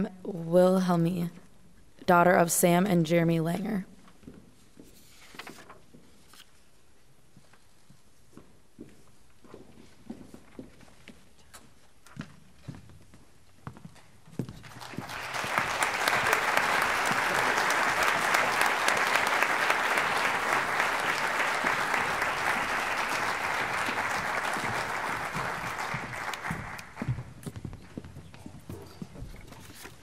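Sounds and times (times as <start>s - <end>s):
audience applauding: 14.6s - 27.2s.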